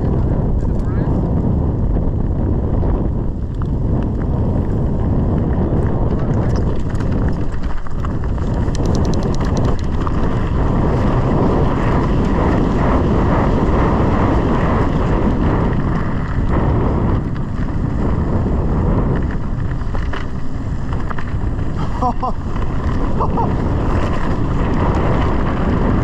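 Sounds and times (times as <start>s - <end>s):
bike rumbling and rattling on dirt: 0.0s - 26.0s
wind buffeting microphone: 0.0s - 26.0s
rapid clicking: 5.8s - 11.0s.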